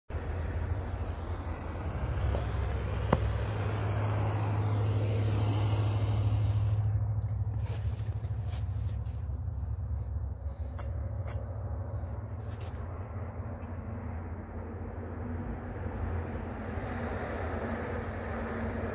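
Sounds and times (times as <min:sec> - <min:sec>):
gas torch hissing: 0:00.1 - 0:08.4
torch flame rumble: 0:00.1 - 0:18.9.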